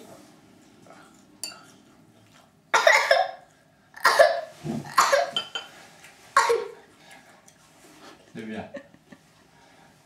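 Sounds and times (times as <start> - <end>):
sharp coughs: 2.8 - 3.4, 4.0 - 5.4, 6.4 - 6.8.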